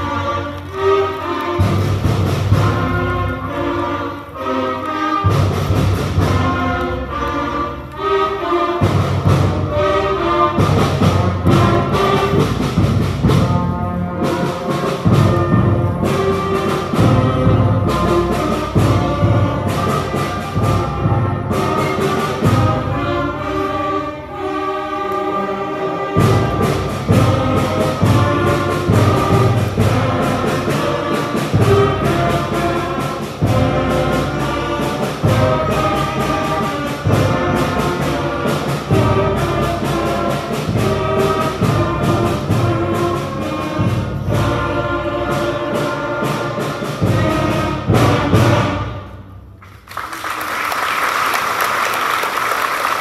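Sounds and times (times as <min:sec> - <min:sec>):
school concert band playing: 0:00.0 - 0:53.0
audience applause: 0:49.6 - 0:53.0.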